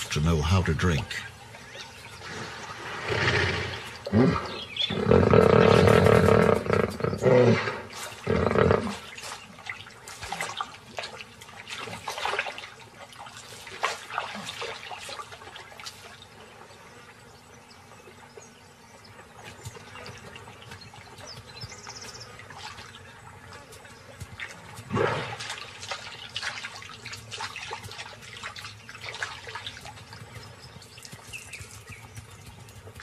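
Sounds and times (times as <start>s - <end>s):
water splashing: 0.0s - 16.6s, 19.3s - 33.0s.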